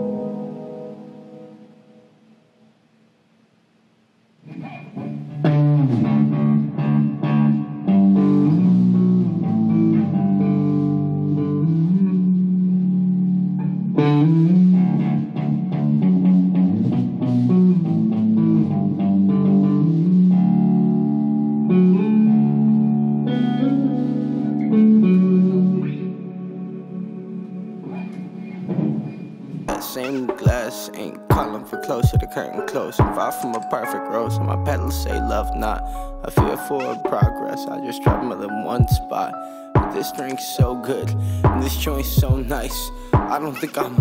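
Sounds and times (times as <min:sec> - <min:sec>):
electric guitar: 0:00.0 - 0:02.5, 0:04.4 - 0:44.0
low sustained bass: 0:41.1 - 0:43.1.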